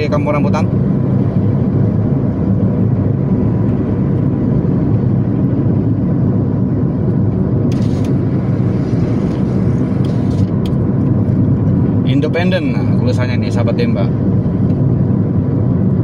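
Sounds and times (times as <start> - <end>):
car engine and tyre rumble: 0.0 - 16.0.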